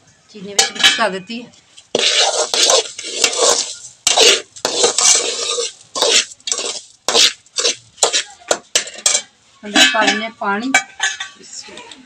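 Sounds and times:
metal spoon scraping pot: 1.9s - 10.2s.

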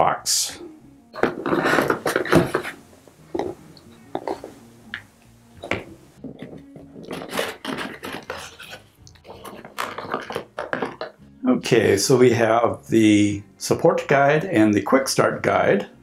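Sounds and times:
cardboard rubbing and rustling: 1.2s - 2.8s, 6.2s - 11.1s.

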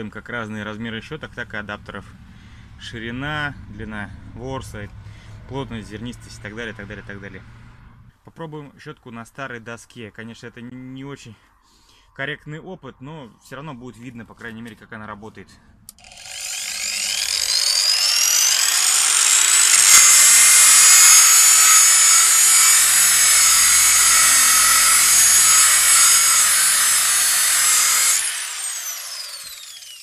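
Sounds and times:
angle grinder brush whining: 15.9s - 30.0s.

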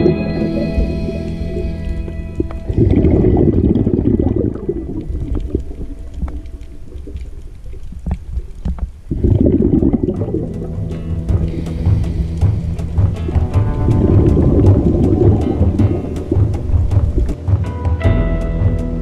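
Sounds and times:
underwater breath bubbling: 0.1s - 8.4s, 9.1s - 10.8s, 11.4s - 13.2s.

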